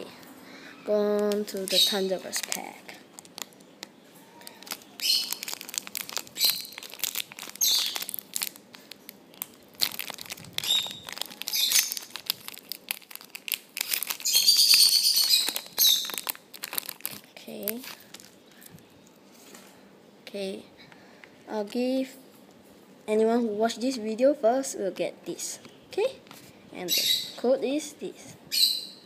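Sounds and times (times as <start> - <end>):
foil wrapper crinkling: 1.0 - 18.8.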